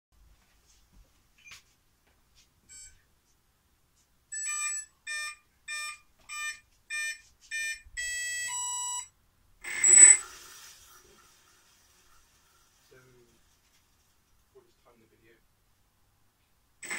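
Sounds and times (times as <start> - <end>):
electronic steady tones: 4.3 - 10.3
electronic beeps: 4.4 - 10.2.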